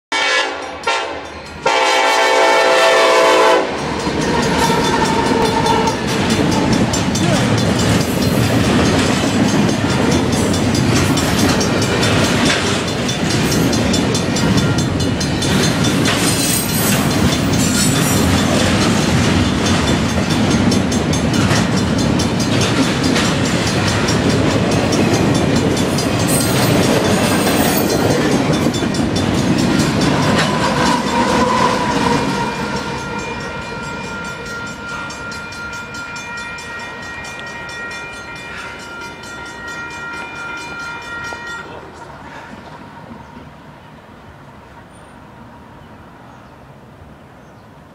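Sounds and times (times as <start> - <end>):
locomotive horn: 0.1 - 6.8, 30.2 - 42.2
train wheels clattering: 0.6 - 43.2.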